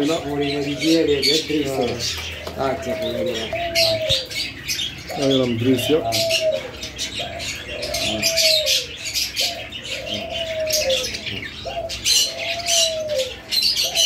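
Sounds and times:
dove cooing: 0:00.0 - 0:14.0
small cage birds chirping: 0:00.0 - 0:14.0.

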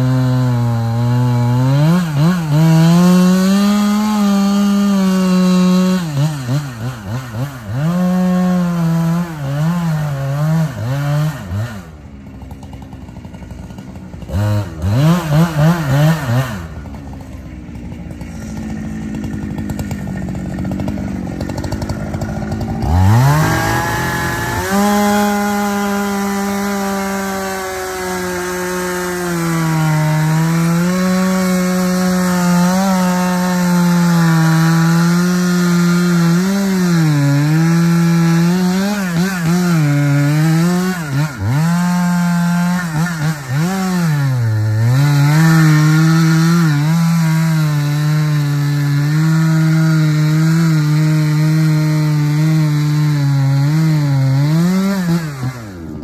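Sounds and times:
engine running hard under load: 0:11.2 - 0:52.4.

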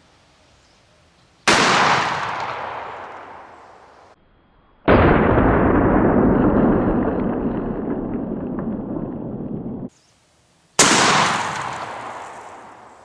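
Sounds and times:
shotgun blasts: 0:01.5 - 0:03.7, 0:10.8 - 0:13.0.

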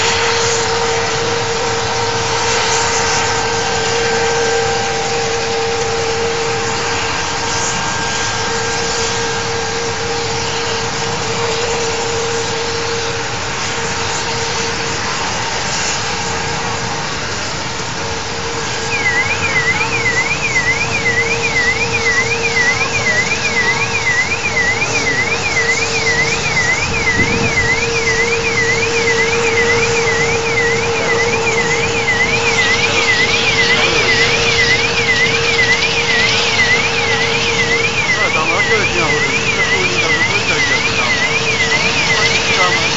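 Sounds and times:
helicopter engines and rotor running: 0:00.0 - 0:42.9
warbling tone: 0:19.0 - 0:42.9.

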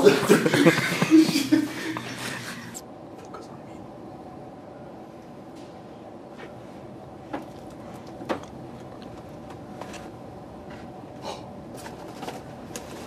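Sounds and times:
room hum: 0:00.0 - 0:13.0.

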